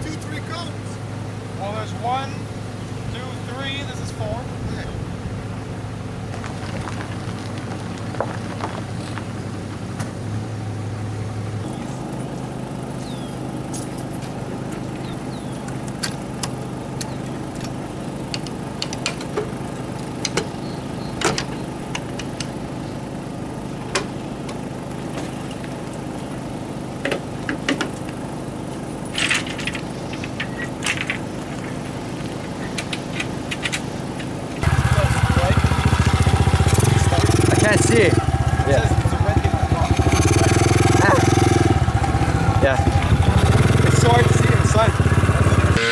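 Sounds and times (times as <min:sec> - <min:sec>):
low engine hum: 0:00.0 - 0:45.9
metallic clicks and clanks: 0:29.1 - 0:31.3, 0:32.4 - 0:34.3.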